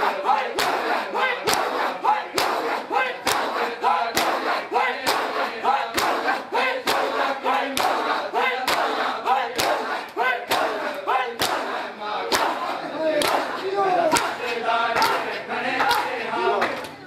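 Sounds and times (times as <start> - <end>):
crowd chanting and shouting: 0.0 - 17.0
hands slapping bare chests: 0.5 - 14.4, 15.0 - 16.9.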